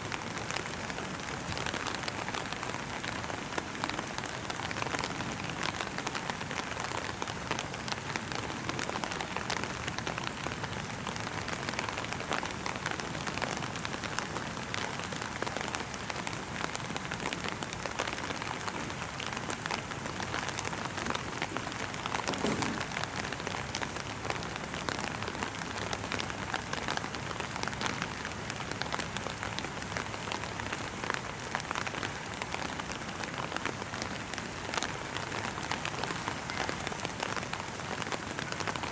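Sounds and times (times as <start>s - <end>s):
steady rain falling: 0.0s - 38.9s.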